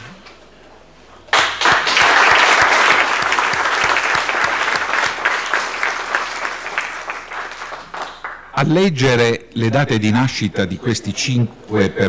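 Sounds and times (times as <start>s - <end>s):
audience applause: 1.3s - 8.5s.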